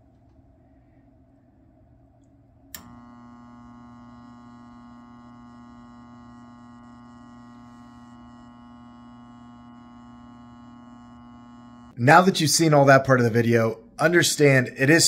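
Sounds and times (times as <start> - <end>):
furnace blower motor humming: 2.7 - 12.0.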